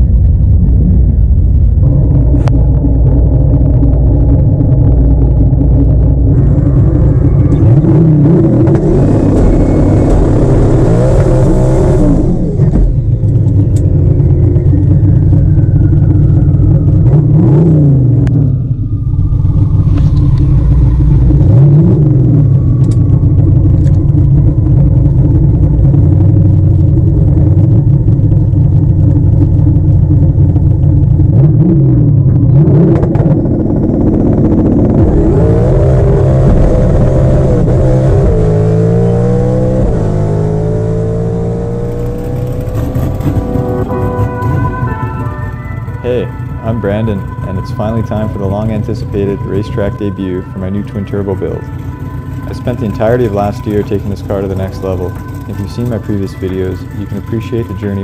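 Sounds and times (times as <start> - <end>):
car engine revving: 0.0 - 58.0
high whine falling in pitch: 0.0 - 58.0.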